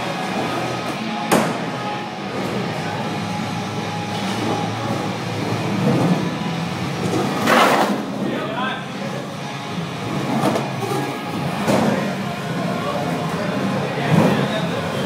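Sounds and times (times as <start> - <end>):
skateboard wheels rolling on wood: 7.0 - 8.1.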